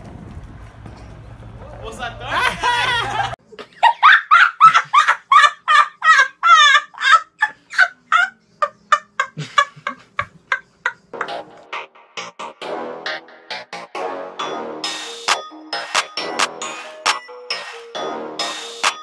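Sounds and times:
boy laughing hard: 2.2s - 11.2s.

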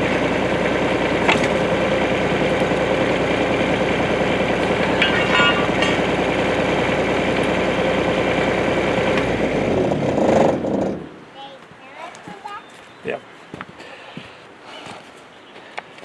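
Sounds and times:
diesel excavator engine running: 0.0s - 11.3s.

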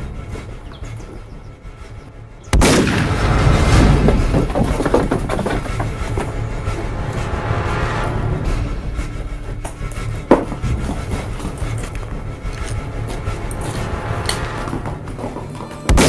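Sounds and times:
gunshot with rumbling tail: 2.5s - 4.3s.

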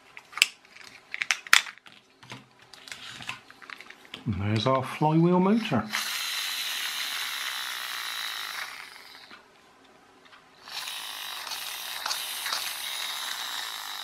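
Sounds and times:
toy friction motor whirring: 5.9s - 9.4s, 10.6s - 14.0s.

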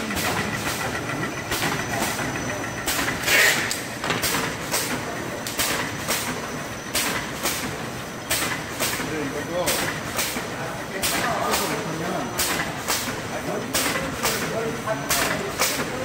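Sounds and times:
machine mechanical clatter: 0.0s - 16.0s
short machine hisses: 3.2s - 3.7s.

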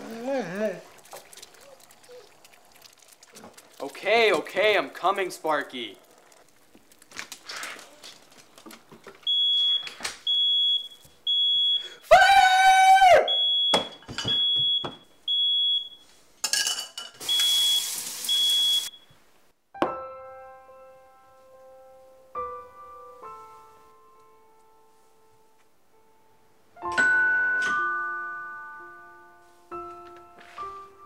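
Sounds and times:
smoke alarm beeping: 9.2s - 12.1s, 13.3s - 16.2s, 17.2s - 19.2s
loud high-pitched cry: 12.1s - 13.3s
soft piano music: 19.8s - 31.0s.

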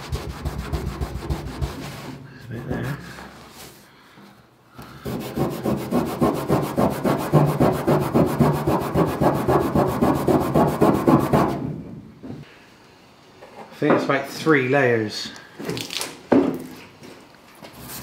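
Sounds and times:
hand rubbing metal panel: 0.0s - 3.8s, 5.0s - 11.6s.

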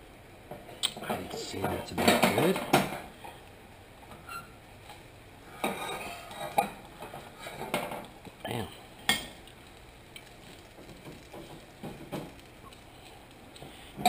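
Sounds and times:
frying pan and spatula clattering: 1.0s - 3.1s, 5.6s - 8.1s, 10.7s - 12.4s.

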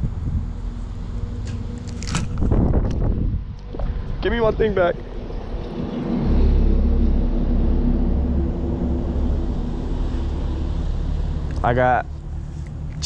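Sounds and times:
engine drone with deep rumble: 0.0s - 13.0s.

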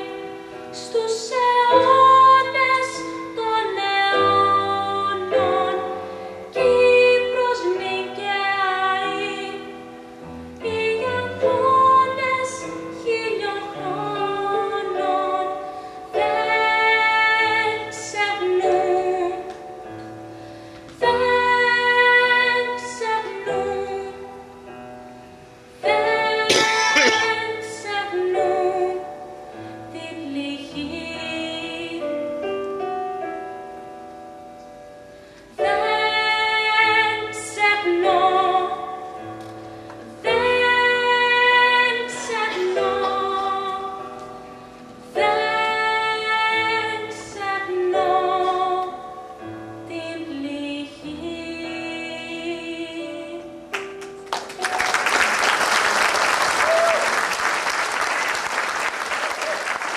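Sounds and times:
woman singing slow song: 0.0s - 20.2s, 20.9s - 24.9s, 25.8s - 33.4s, 35.5s - 39.3s, 40.0s - 53.7s
keyboard chords: 23.3s - 29.8s
audience applause: 54.3s - 59.9s.

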